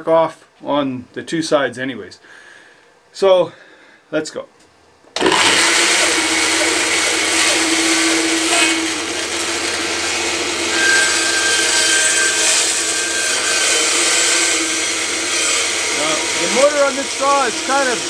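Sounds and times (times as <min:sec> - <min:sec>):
bandsaw cutting wood: 0:05.2 - 0:18.0.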